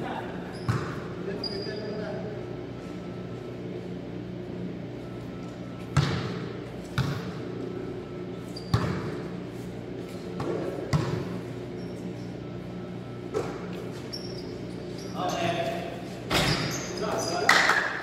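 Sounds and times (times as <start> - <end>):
steady low hum: 0.0 - 18.0
basketballs bouncing on hard floor: 0.5 - 1.0, 6.0 - 7.3, 8.6 - 9.2, 10.4 - 11.4.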